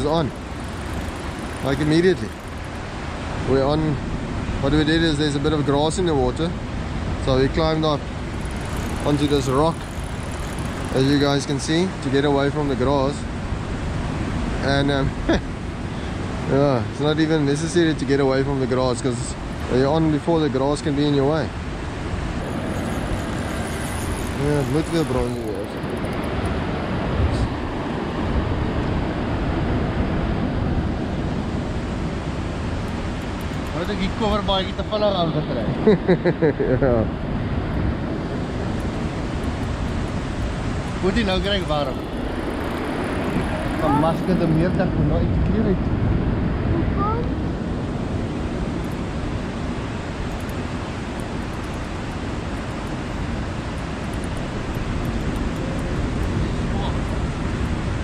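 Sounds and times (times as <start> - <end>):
surf against rocks: 0.0 - 35.9, 37.1 - 45.8, 47.3 - 58.0
wind rumbling on microphone: 37.0 - 58.0.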